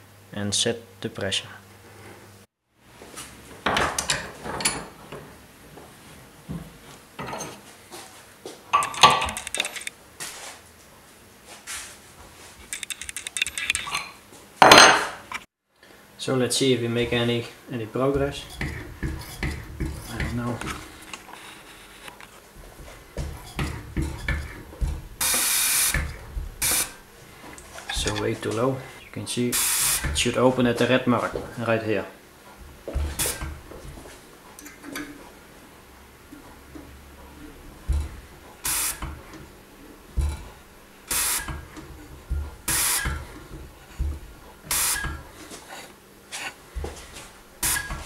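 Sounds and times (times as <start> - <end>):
low thumps of tester pumping: 18.2 - 21.0, 22.6 - 28.6, 29.6 - 30.4, 32.6 - 34.2, 37.6 - 45.4, 46.8 - 48.0
fuel injector spraying with hiss: 23.2 - 27.1, 29.5 - 30.4, 32.9 - 34.0, 37.9 - 39.4, 40.2 - 45.4, 46.8 - 48.0.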